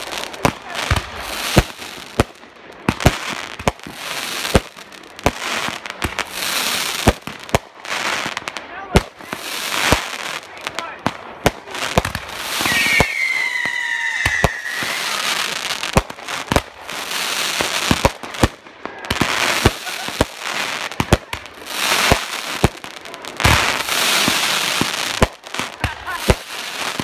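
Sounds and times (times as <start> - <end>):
fireworks crackling: 0.0 - 27.0
firework shells bursting: 12.0 - 16.1
firework whistle: 12.5 - 15.6.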